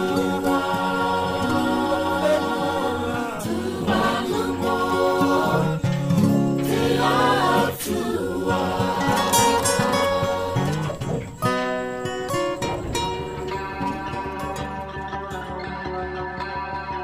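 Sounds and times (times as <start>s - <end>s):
choir singing in harmony: 0.0s - 16.0s.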